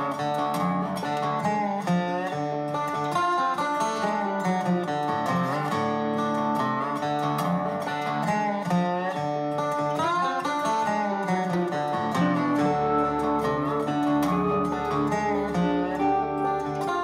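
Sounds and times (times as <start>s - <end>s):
acoustic guitar music: 0.0s - 17.0s.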